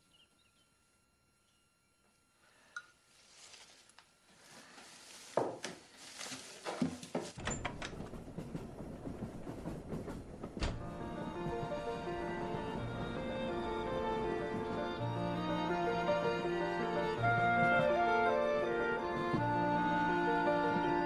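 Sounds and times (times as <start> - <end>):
straw packing rustling: 3.0 - 7.4
low rumble: 7.4 - 15.2.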